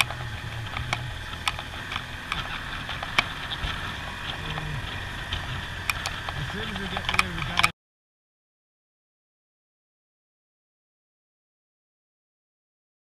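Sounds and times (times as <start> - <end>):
light clicks and rattles: 0.0 - 7.7
motorcycle engine revving: 0.0 - 7.7.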